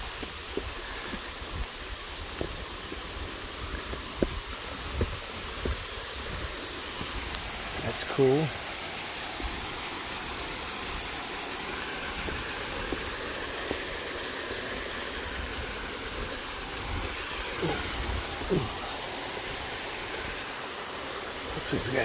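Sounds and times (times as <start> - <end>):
footsteps on stone: 0.0 - 7.5, 12.2 - 13.9
stream rushing over rocks: 0.0 - 22.0.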